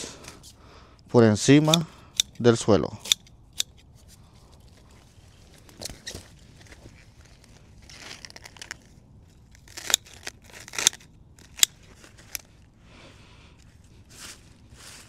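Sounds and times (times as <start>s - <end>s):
pruning shears snipping leaves: 1.5s - 4.2s
leaves rustling: 3.8s - 15.0s.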